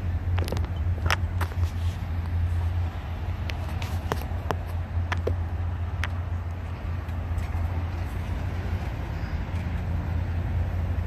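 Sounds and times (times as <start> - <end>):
road traffic rumble: 0.0 - 11.0.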